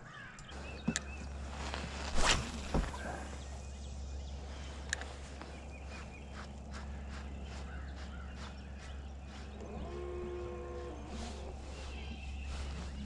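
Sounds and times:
steady low hum: 0.5s - 13.0s
fishing rod swish: 2.0s - 3.1s.

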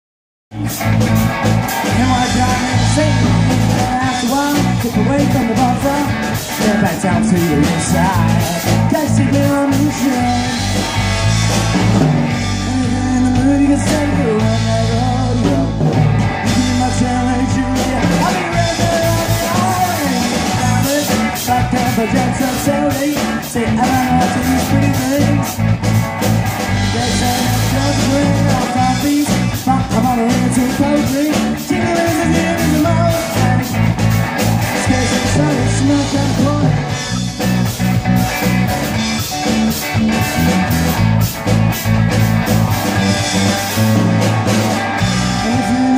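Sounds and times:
bass guitar: 0.5s - 45.9s
drums: 0.5s - 45.9s
electric guitar: 0.5s - 45.9s.

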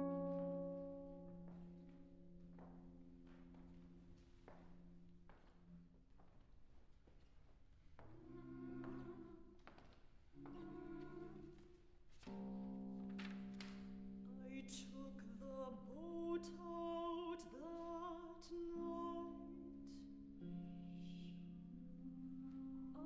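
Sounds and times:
woman singing operatically: 14.4s - 20.0s.

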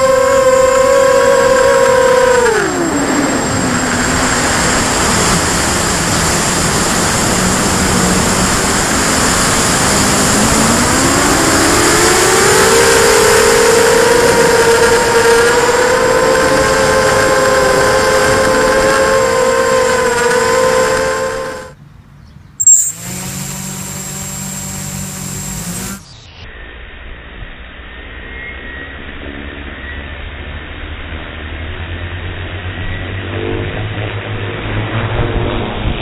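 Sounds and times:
quadcopter motors whining: 0.0s - 21.8s, 22.6s - 26.4s.

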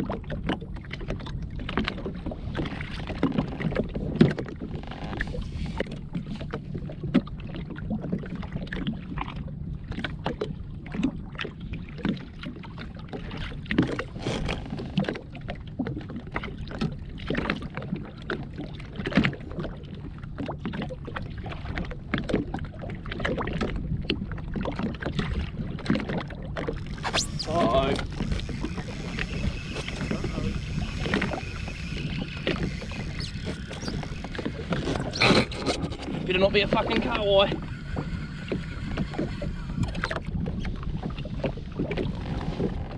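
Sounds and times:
waves slapping against hull: 0.0s - 42.9s
steady low hum: 26.7s - 42.2s.

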